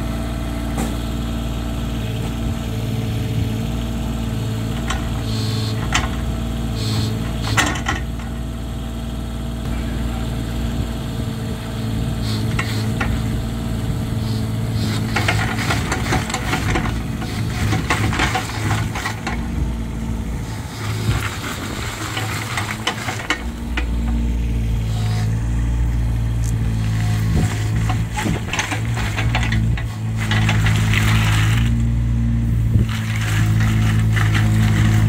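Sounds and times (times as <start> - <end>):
excavator diesel engine running: 0.0 - 35.0
rattling clicks: 26.4 - 31.7.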